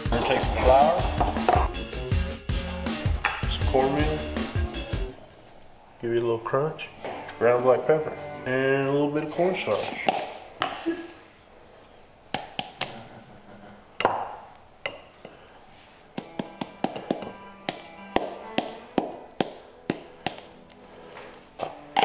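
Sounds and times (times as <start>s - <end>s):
background music with tapping beats: 0.0s - 5.1s, 16.2s - 22.0s
held musical notes: 0.0s - 10.0s, 16.2s - 22.0s.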